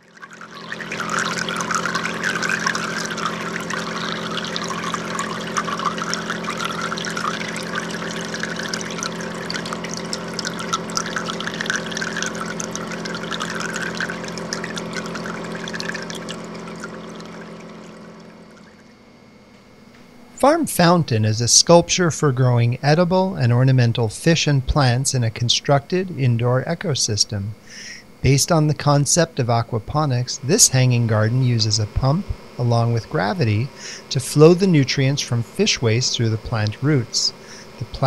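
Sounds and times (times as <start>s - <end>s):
water trickling and splashing: 0.0s - 19.1s
steady low hum: 0.0s - 38.0s.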